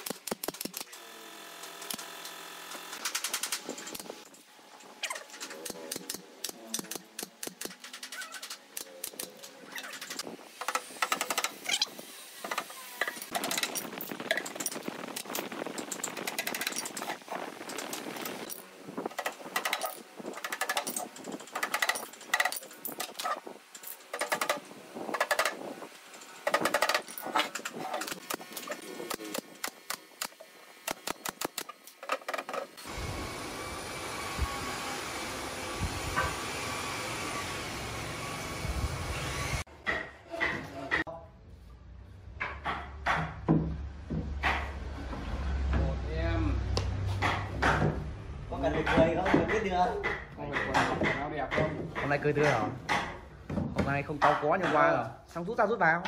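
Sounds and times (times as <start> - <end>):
pneumatic nail gun: 0.0 - 4.3, 5.1 - 15.4, 16.0 - 39.6.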